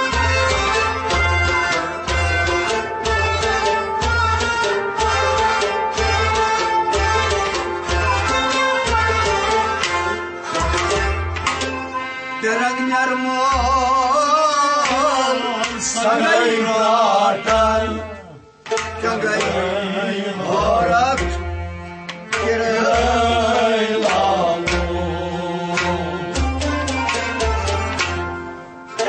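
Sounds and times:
hand drum beats: 0.0s - 11.8s, 20.5s - 28.4s
string accompaniment: 0.0s - 29.0s.

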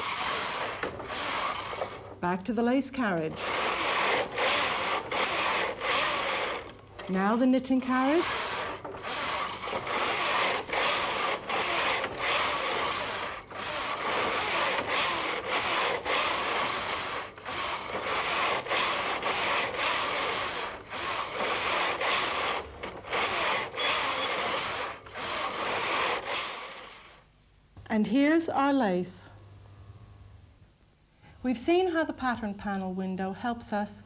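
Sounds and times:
knitting machine carriage whirring: 0.0s - 2.2s, 3.1s - 27.2s.

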